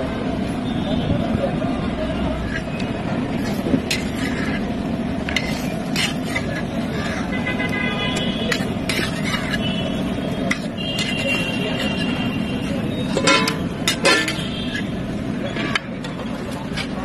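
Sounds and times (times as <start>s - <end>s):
street noise: 0.0s - 17.0s
metal spatula scraping iron pan: 2.4s - 7.5s, 8.1s - 17.0s.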